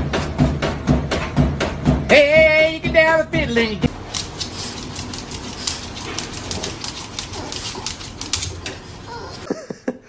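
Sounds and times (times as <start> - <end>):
rapid clicking and tapping: 4.1 - 8.9.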